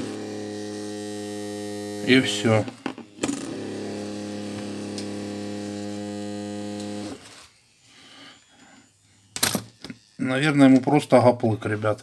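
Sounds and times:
phone vibration motor buzzing: 0.0s - 7.8s.

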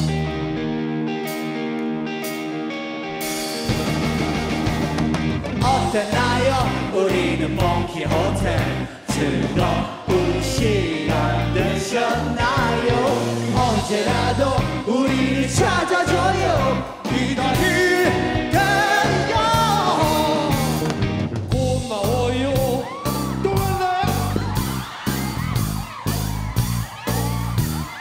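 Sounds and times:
rock band playing live: 0.0s - 28.0s
man singing lead vocal: 5.6s - 24.4s.

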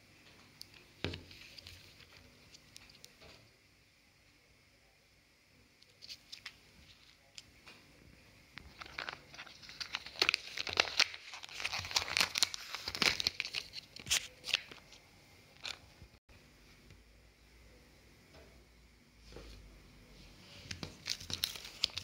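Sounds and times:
plastic wrapping crinkling: 8.6s - 15.0s, 20.7s - 22.0s.

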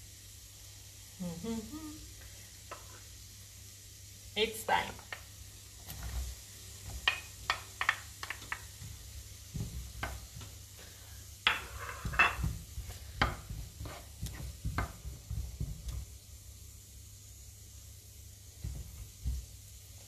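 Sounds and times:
leeks sizzling in oil: 0.0s - 20.0s
wooden spatula knocking and scraping: 5.0s - 10.6s, 11.4s - 16.2s, 18.6s - 19.6s.

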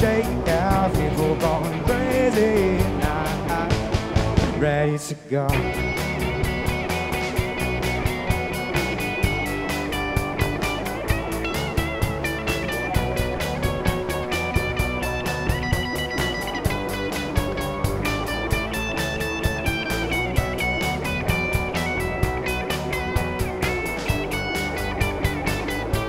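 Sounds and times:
steady drum beat: 0.0s - 4.8s, 5.5s - 26.0s
electric guitars: 0.0s - 26.0s.

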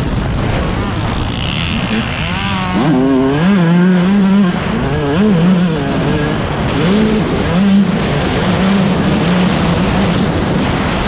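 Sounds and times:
background rush of noise: 0.0s - 11.0s
dirt bike engines revving: 0.0s - 11.0s.

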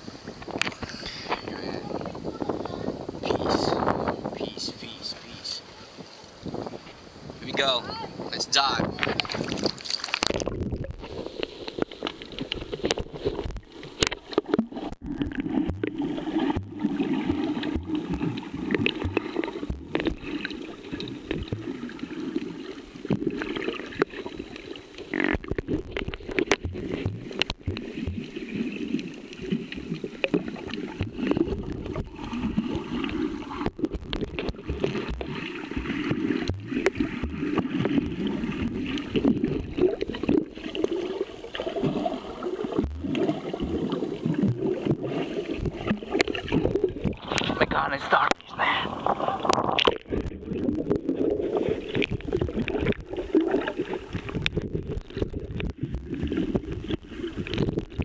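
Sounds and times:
muffled underwater rush: 0.0s - 58.0s.

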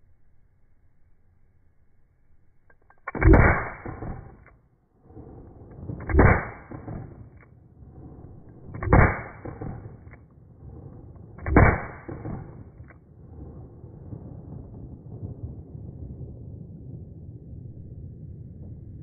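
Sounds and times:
gunshot echo: 3.0s - 4.5s, 5.8s - 7.5s, 8.6s - 10.2s, 11.4s - 12.9s
revolver shots: 3.1s - 4.4s, 6.0s - 7.2s, 8.8s - 10.1s.

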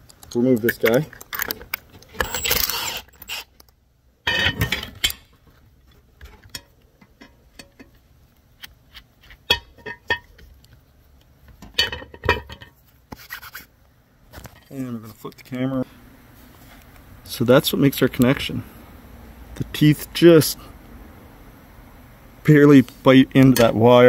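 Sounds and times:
small metallic clicks and rubbing: 0.0s - 13.7s
impact wrench running: 2.2s - 3.5s.

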